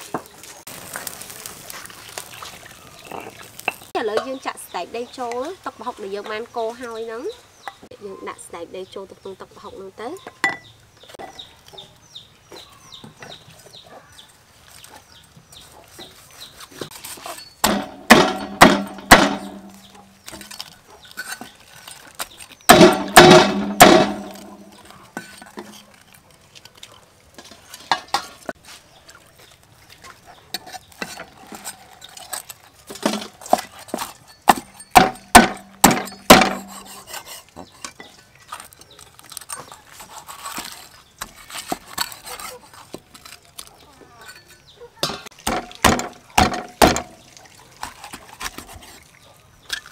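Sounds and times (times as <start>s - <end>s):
cleaver chopping on wooden board: 17.6s - 19.8s, 22.7s - 24.7s, 34.5s - 37.2s, 45.4s - 47.2s.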